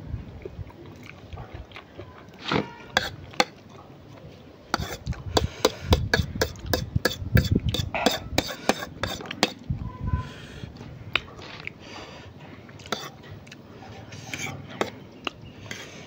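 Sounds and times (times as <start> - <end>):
fork clicking and scraping on plate: 4.8 - 9.6, 12.8 - 15.9
noodles slurped and chewed: 11.1 - 16.0.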